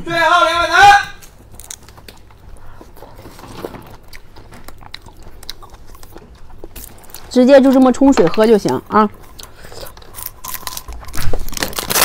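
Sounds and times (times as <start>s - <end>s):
mouth clicks and crunches: 1.2s - 12.0s
person chewing food: 1.4s - 7.4s, 9.1s - 12.0s.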